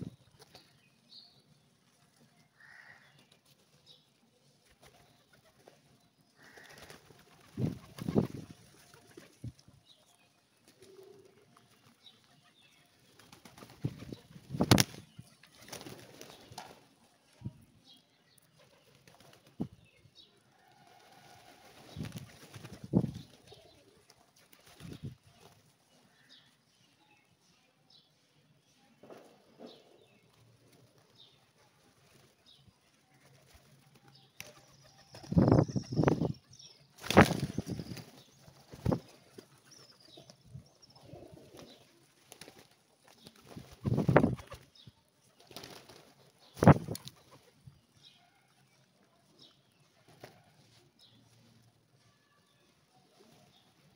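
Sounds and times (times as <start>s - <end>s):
pigeon wings flapping: 6.5s - 9.4s, 13.2s - 15.0s, 15.6s - 16.8s, 37.0s - 39.1s, 45.4s - 47.4s.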